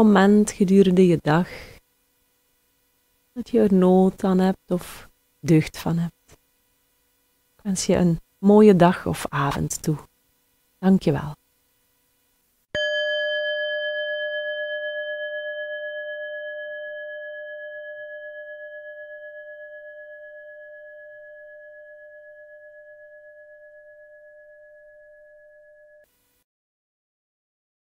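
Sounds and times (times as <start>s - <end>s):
singing bowl ringing: 12.8s - 26.1s.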